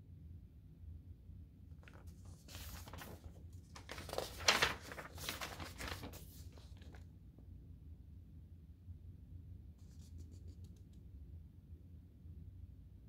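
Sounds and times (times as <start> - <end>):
book pages turning: 1.8 - 7.0.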